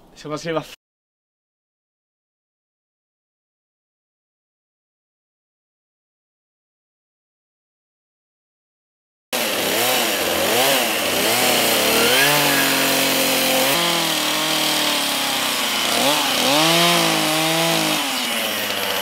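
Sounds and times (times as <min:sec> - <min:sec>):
chainsaw cutting log: 0:09.4 - 0:19.0.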